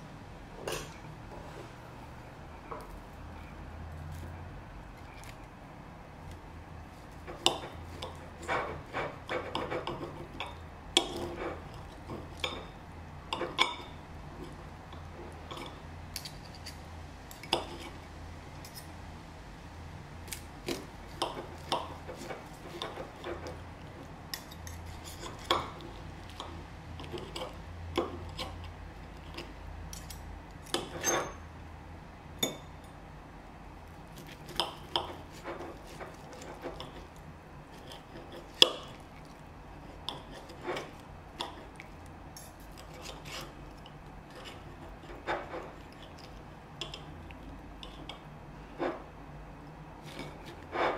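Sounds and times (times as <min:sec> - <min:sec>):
knife and fork scraping a plate: 0:07.1 - 0:18.9, 0:20.3 - 0:31.5, 0:34.2 - 0:49.1, 0:50.0 - 0:50.9.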